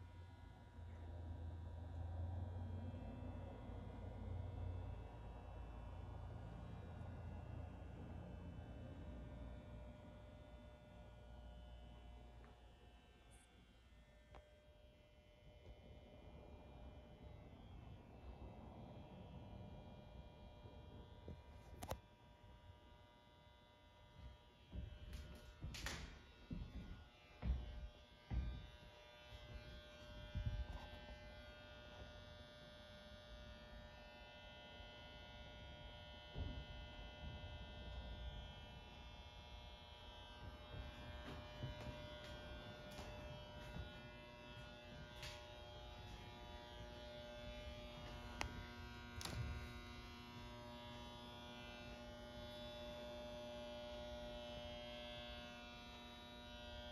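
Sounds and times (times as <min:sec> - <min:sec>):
electrical buzz: 0:24.2 - 0:32.2, 0:35.9 - 0:56.6.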